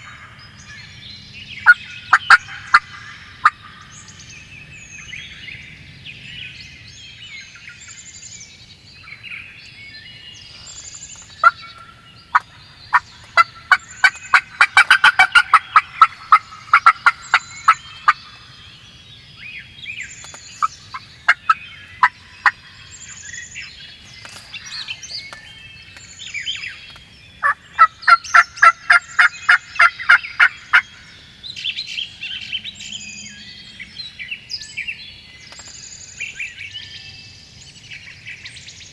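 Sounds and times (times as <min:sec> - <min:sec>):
songbirds singing: 0:00.0 - 0:38.9
turkey yelps: 0:12.3 - 0:18.2.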